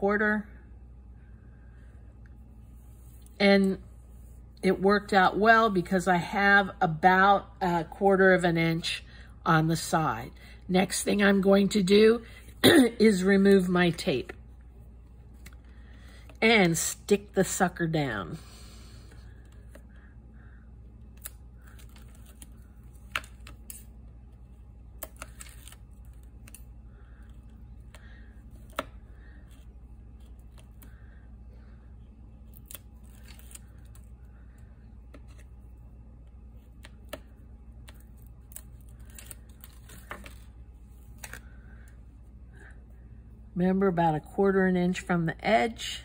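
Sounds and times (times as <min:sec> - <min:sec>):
low steady hum: 0:00.0 - 0:46.0
tape backing peeled: 0:21.1 - 0:30.9, 0:32.4 - 0:34.1, 0:36.4 - 0:41.6.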